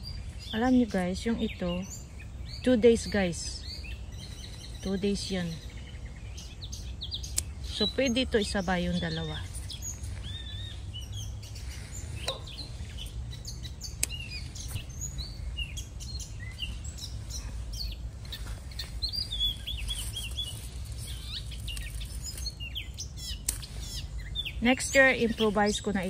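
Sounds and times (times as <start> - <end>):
small birds chirping: 0.0 - 26.0
steady low rumble: 0.0 - 26.0
sharp clicks: 7.2 - 7.6, 13.9 - 14.4.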